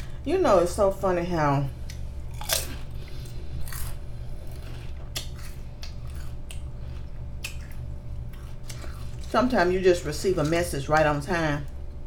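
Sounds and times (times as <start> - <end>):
steady low hum: 0.0 - 12.0
chewing potato chips: 1.8 - 10.7.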